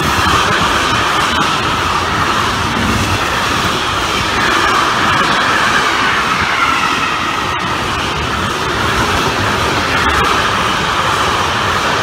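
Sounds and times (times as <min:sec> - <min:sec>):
train wheels rushing on rail: 0:00.0 - 0:12.0.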